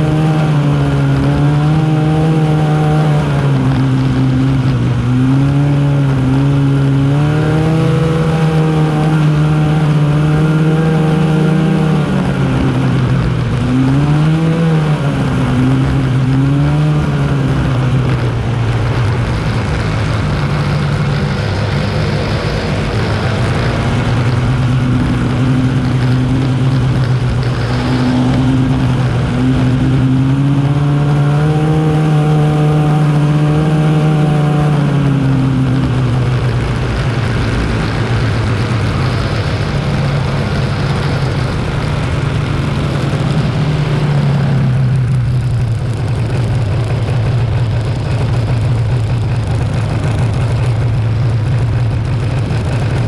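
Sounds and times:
snowmobile engine revving: 0.0s - 53.0s
steady rushing noise: 0.0s - 53.0s.

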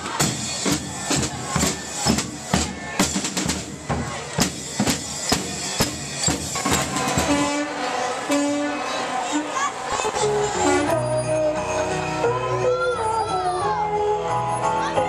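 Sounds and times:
marching drum corps cadence: 0.0s - 10.1s.

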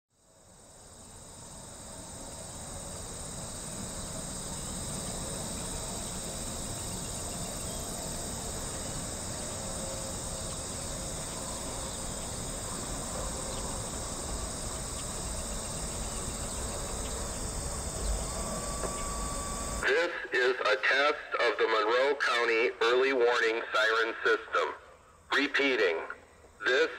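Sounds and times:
crickets chirping: 0.1s - 26.9s
short steady tone: 16.1s - 19.8s.

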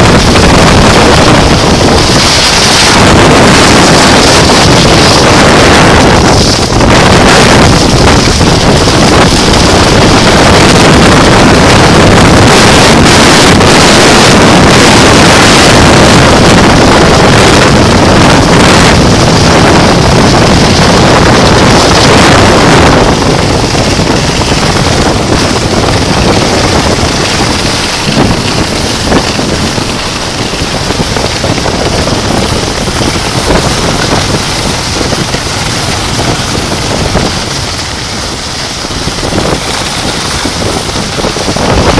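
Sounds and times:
skis hissing on snow: 0.0s - 41.9s
wind buffeting microphone: 0.0s - 41.9s.

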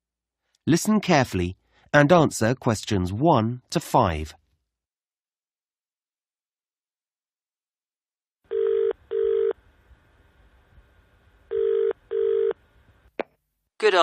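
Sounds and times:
telephone ringing tone: 8.5s - 9.6s, 11.5s - 12.6s.

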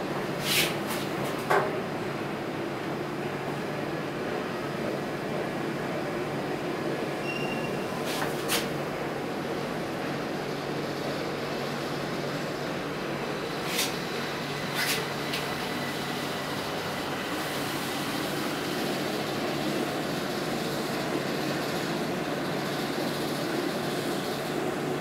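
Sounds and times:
inclined elevator running: 7.1s - 8.5s.

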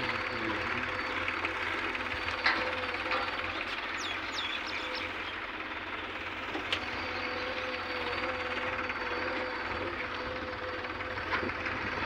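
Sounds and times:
distant diesel engines running: 0.0s - 12.0s
bird chirping: 3.4s - 5.4s.

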